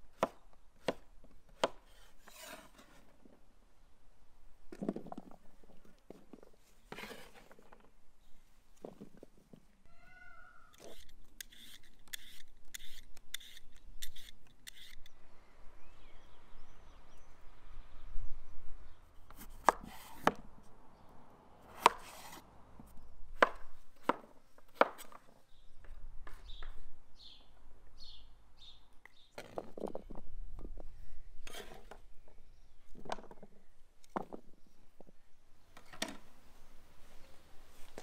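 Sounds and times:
cleaver chopping on wooden board: 23.4 - 25.2.

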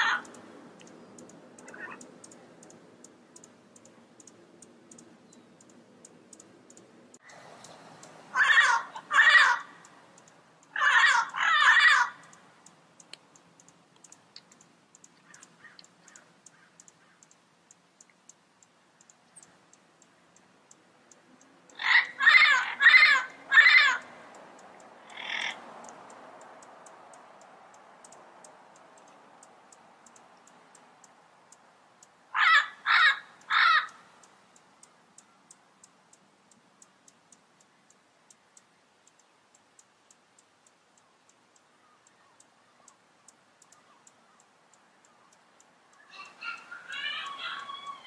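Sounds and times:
parrot harsh calls: 0.0 - 0.3, 1.6 - 2.0, 8.3 - 9.8, 10.7 - 12.3, 21.7 - 24.2, 25.0 - 25.6, 32.3 - 34.0, 46.0 - 48.0
faint rapid ticking: 0.0 - 8.2, 9.7 - 10.8, 12.1 - 21.9, 23.3 - 32.3, 33.3 - 46.1.

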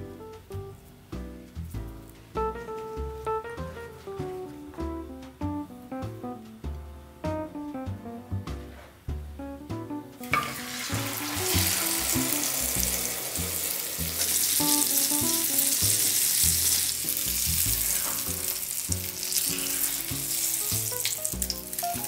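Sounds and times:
meat and egg sizzling in oil: 10.2 - 22.0.

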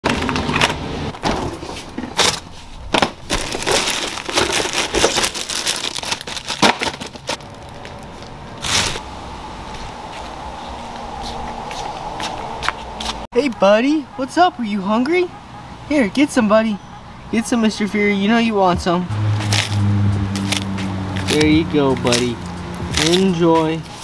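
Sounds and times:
plastic bag crinkling: 3.3 - 9.0.

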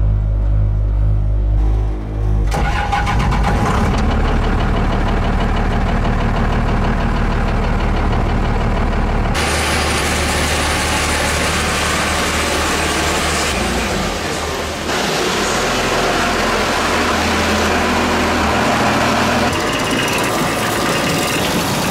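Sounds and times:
engine running inside cab: 0.0 - 21.9.

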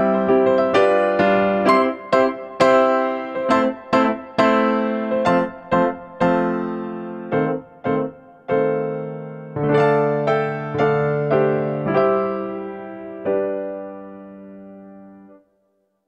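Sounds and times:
piano music: 0.0 - 15.6.

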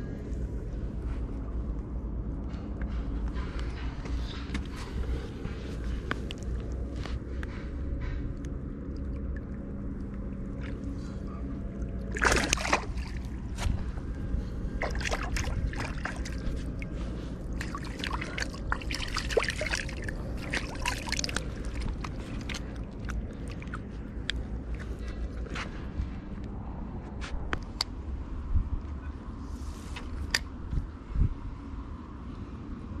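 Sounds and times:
hand splashing in lake water: 12.0 - 13.9, 14.8 - 23.8
water dripping: 17.5 - 24.5.

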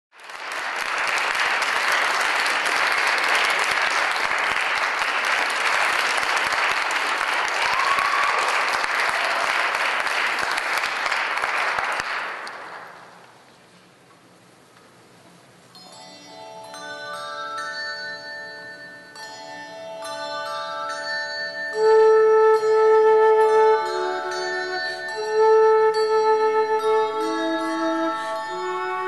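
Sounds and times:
audience applauding: 0.1 - 13.2.

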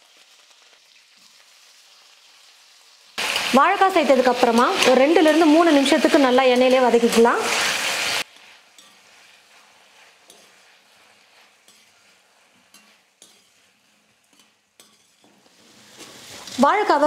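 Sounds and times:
faint sizzling in oil: 0.0 - 17.0
metal spatula scraping pan: 4.4 - 16.6.

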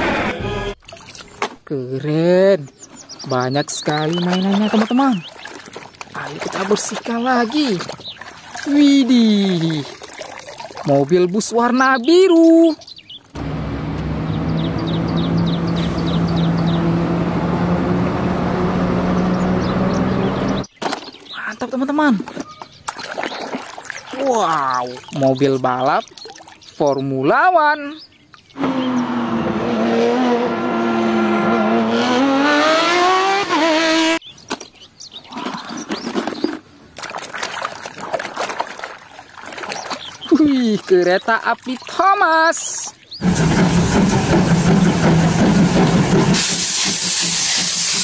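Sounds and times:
water splashing in plastic tub: 0.8 - 1.6, 3.6 - 13.4, 20.8 - 26.8, 35.3 - 42.8
bird chirping: 2.3 - 9.9, 10.9 - 13.4, 14.2 - 17.0, 19.1 - 29.2, 34.0 - 36.8, 39.5 - 43.3
road noise: 12.8 - 21.3, 28.0 - 36.7, 39.2 - 48.0
diesel bus engine running: 13.4 - 20.7, 43.2 - 48.0.

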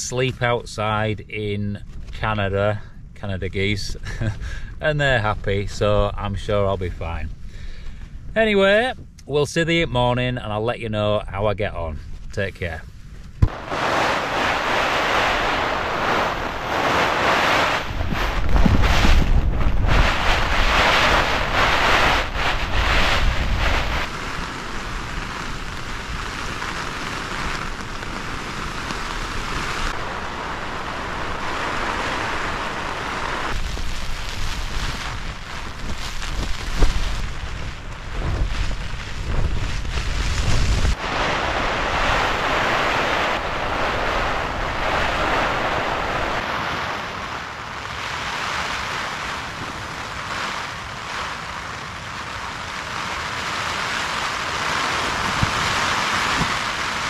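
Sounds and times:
wind: 0.0 - 57.0
wind gusts rumbling on microphone: 0.0 - 57.0
tent fabric buffeted: 13.3 - 24.1
rain on a tent: 13.4 - 57.0.

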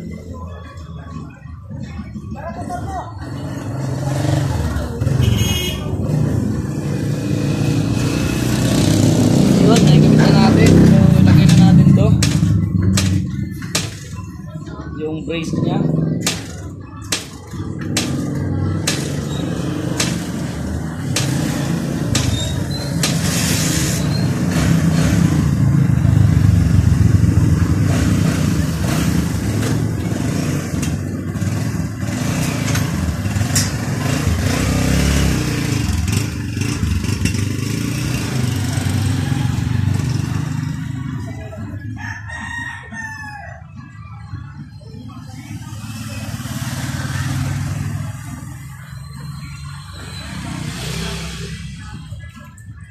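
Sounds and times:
rooster crowing: 41.9 - 43.9.

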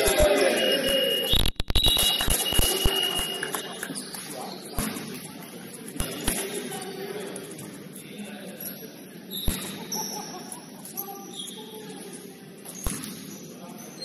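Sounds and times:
players' voices: 0.0 - 1.3, 2.5 - 14.0
sneaker squeaks: 0.6 - 5.3, 8.6 - 12.0, 12.6 - 14.0.

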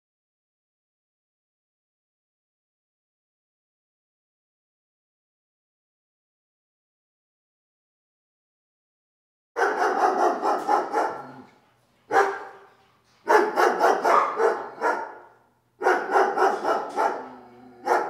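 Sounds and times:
dog barking: 9.6 - 18.0.

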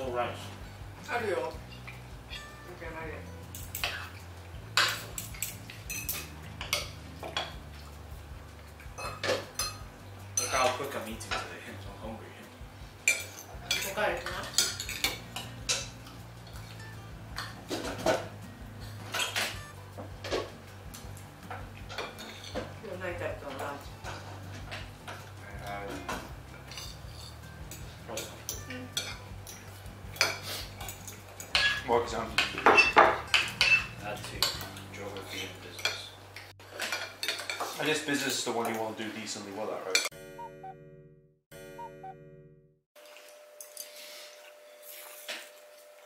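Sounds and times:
cutlery clinking on plates: 3.5 - 7.6, 8.8 - 11.5, 13.0 - 18.4, 19.0 - 20.6, 21.5 - 22.8, 23.5 - 38.8.

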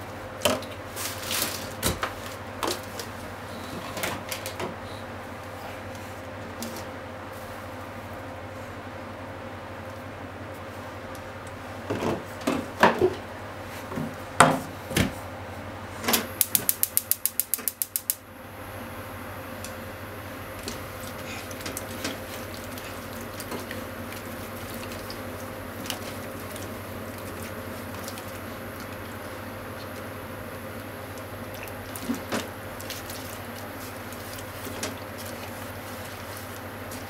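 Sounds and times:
faint gas burner hiss: 0.0 - 37.0
gas stove igniter clicking: 16.1 - 18.2
faint crackles of pan heating: 16.3 - 37.0.

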